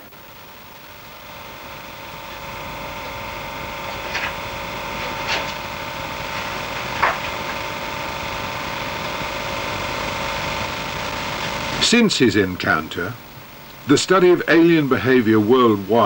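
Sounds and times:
steady hum: 0:00.0 - 0:16.0.

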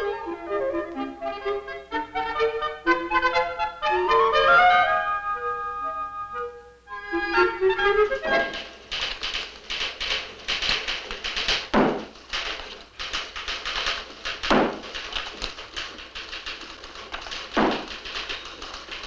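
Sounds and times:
typewriter clatter: 0:07.8 - 0:19.0
rubber stamp thumping on desk: 0:08.3 - 0:19.0.

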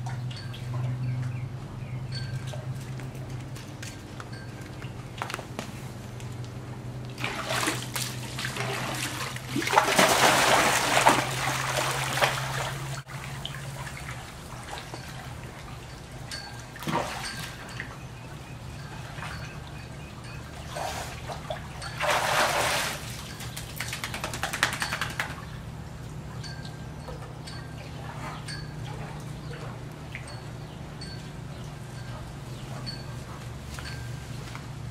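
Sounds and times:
low steady hum: 0:00.0 - 0:34.9
dog splashing through water: 0:07.2 - 0:13.3.

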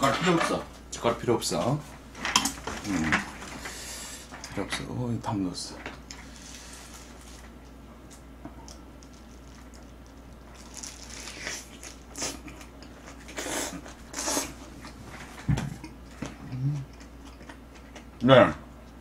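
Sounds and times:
wet biting and chewing: 0:09.2 - 0:14.6.

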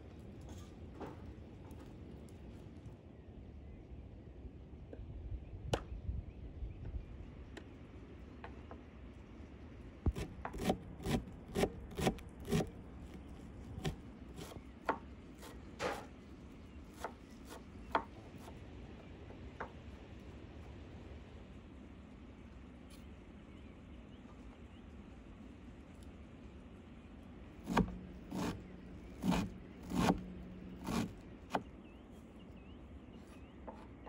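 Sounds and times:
knife chopping on wooden board: 0:10.1 - 0:16.1, 0:16.9 - 0:18.5, 0:27.6 - 0:31.7.

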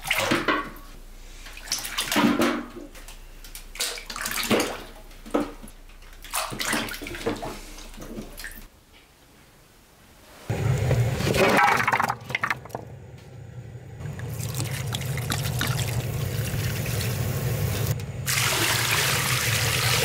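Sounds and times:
water splashing in metal basin: 0:00.0 - 0:08.7, 0:14.0 - 0:20.0.

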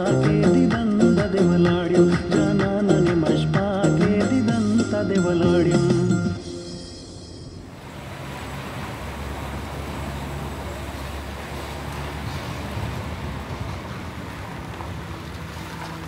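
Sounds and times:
vehicle road noise: 0:06.2 - 0:16.0.

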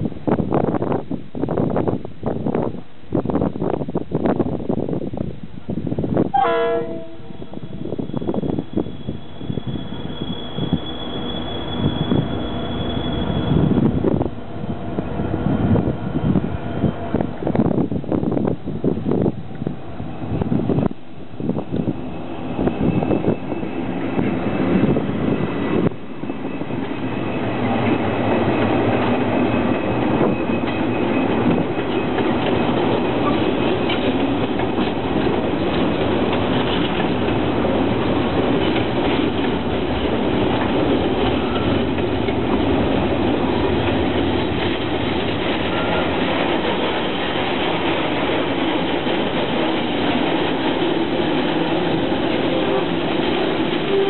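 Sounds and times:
wagons rumbling over rails: 0:00.1 - 0:54.0
locomotive approaching: 0:05.7 - 0:54.0
faint wheel squeal: 0:07.3 - 0:14.1, 0:22.5 - 0:24.0, 0:41.3 - 0:41.8.

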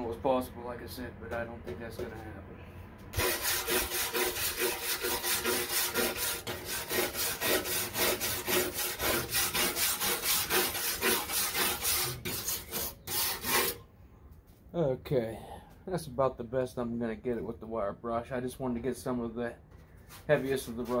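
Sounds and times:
wire brush scrubbing metal: 0:03.1 - 0:13.8, 0:20.2 - 0:21.0.

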